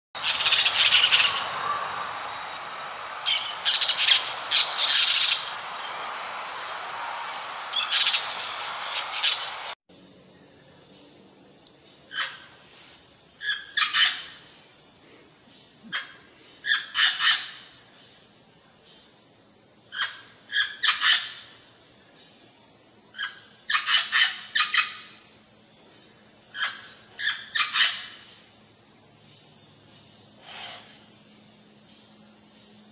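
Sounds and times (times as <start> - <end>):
parrot squawking: 0.2 - 2.5
parakeet harsh calls: 0.2 - 6.7.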